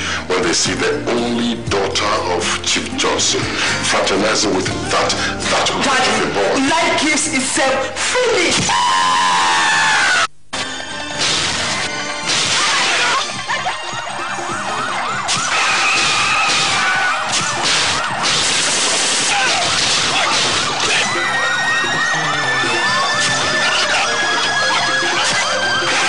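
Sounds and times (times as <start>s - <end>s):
vehicle siren yelping: 12.7s - 26.0s.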